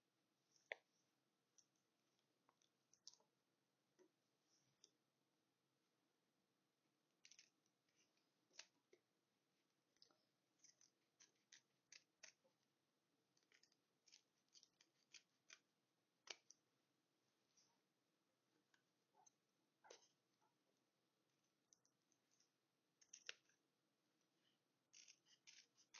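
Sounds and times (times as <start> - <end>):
scissors snipping fabric: 10.0 - 12.5, 13.4 - 16.6, 23.0 - 23.6, 24.9 - 25.9.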